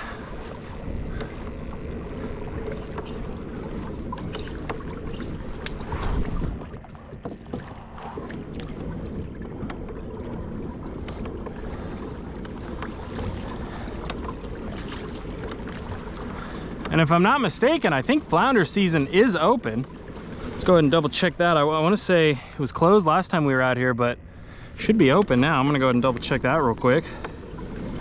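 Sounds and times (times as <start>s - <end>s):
wind rumble on microphone: 0.0s - 17.0s
kayak moving on water: 0.0s - 28.0s.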